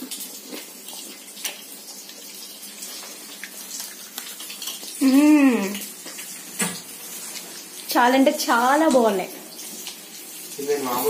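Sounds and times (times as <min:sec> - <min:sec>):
fish frying in oil: 0:00.0 - 0:11.0
person humming: 0:05.0 - 0:05.9.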